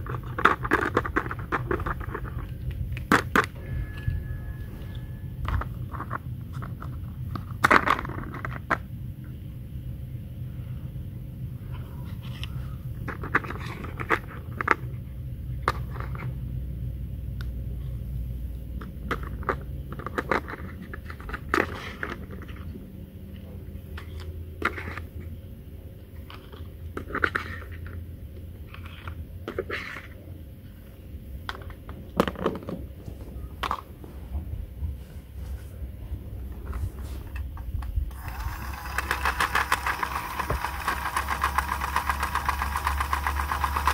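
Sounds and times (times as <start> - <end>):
plastic toys clicking and scraping: 0.0 - 3.6, 5.4 - 8.8, 12.2 - 15.0, 18.8 - 22.7, 26.2 - 28.0, 28.6 - 30.2, 36.6 - 43.9.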